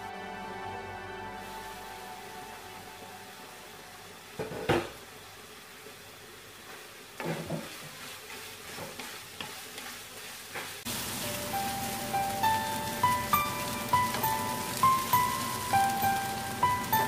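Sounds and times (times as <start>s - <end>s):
vegetables sizzling in a pan: 1.4s - 17.0s
wooden spatula scraping vegetables: 6.6s - 16.9s.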